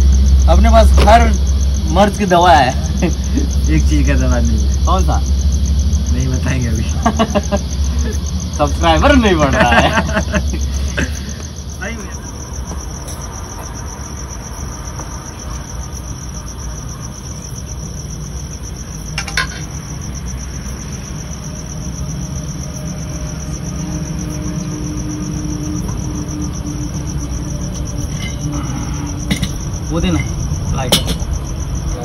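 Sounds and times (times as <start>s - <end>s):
crickets chirping: 0.0s - 32.0s
metal cookware clattering: 19.2s - 19.7s, 30.9s - 31.3s.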